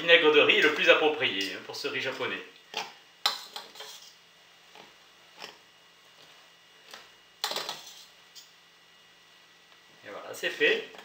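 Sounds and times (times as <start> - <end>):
metal utensil scraping a pot: 3.3 - 4.2, 7.4 - 8.2.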